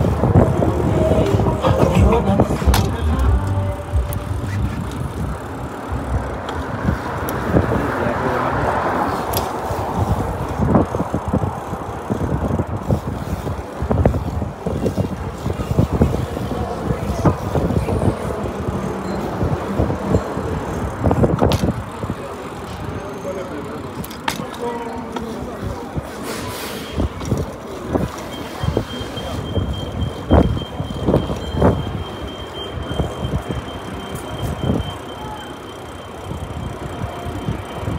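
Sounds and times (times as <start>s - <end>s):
wind rush on microphone: 0.0s - 22.3s
bike knocking and rattling: 0.0s - 37.9s
bike tyres rolling: 0.0s - 37.9s.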